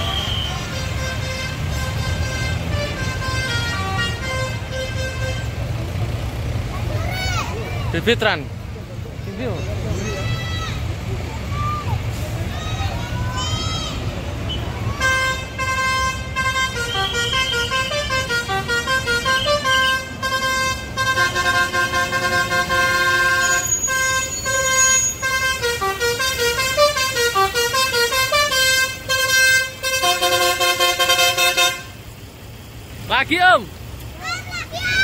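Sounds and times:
bus multi-tone horn melody: 0.0s - 6.6s, 14.4s - 32.1s.

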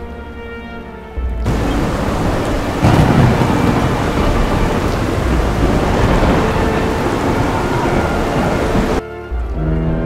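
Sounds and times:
heavy rain pouring: 1.4s - 9.0s
deep rumble of thunder: 1.5s - 9.0s.

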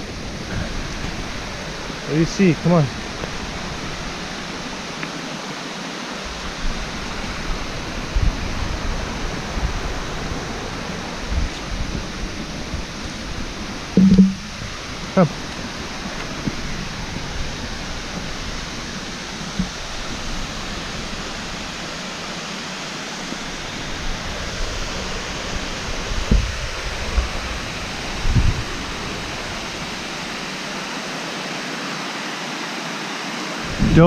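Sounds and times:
waterfall rushing: 0.0s - 34.0s
low thumps: 13.9s - 14.8s.

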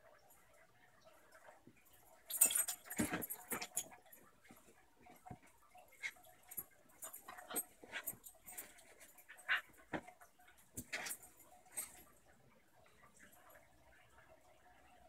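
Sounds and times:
dogs scuffling: 2.3s - 12.1s.

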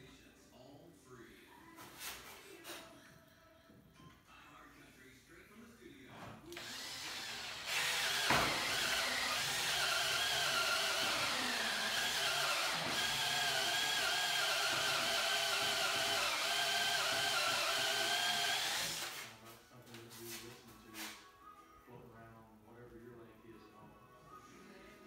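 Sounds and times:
cordless drill whining: 6.6s - 19.3s.

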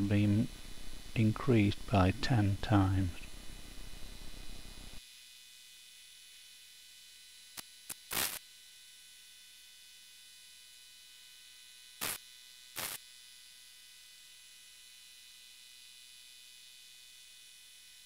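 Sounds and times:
steady hiss and hum: 0.0s - 5.0s, 7.5s - 8.4s, 12.0s - 13.0s
thin high-pitched whine tones: 0.0s - 13.0s
short bursts of noise: 7.6s - 8.4s, 12.0s - 13.0s.

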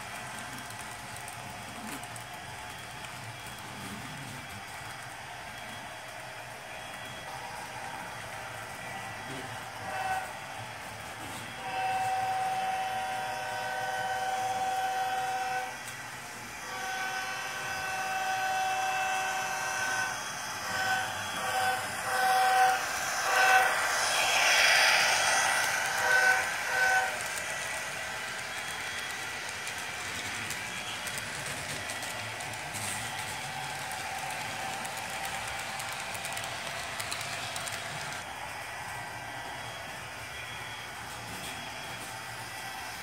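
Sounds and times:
freight cars rolling on track: 0.0s - 43.0s
model train horn: 9.3s - 10.4s, 11.2s - 29.5s
locomotive passing: 20.5s - 43.0s.

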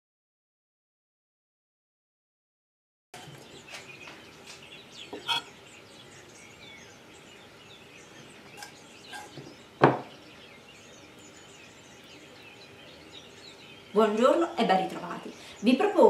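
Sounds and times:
faint birdsong: 3.2s - 16.0s
fork and spoon clinking on plate: 5.2s - 5.5s, 8.6s - 9.4s.

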